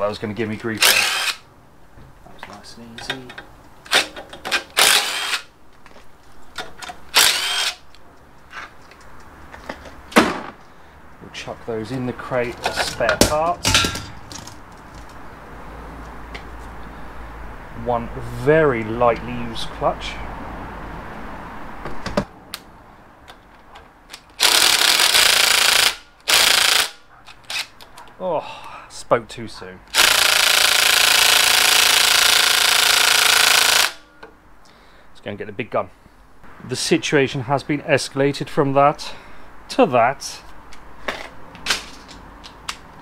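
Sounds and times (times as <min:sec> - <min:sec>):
cordless driver whirring: 0:00.8 - 0:01.4, 0:04.7 - 0:05.5, 0:07.1 - 0:07.8, 0:24.4 - 0:27.7, 0:29.9 - 0:34.0
impact driver hammering: 0:29.9 - 0:34.0.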